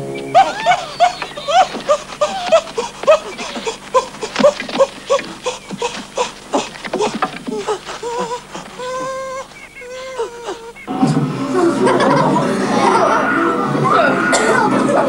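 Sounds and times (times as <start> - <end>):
chorus of ape-like hoots and yelps: 0.0 - 15.0
sharp clicks and knocks: 1.0 - 8.8.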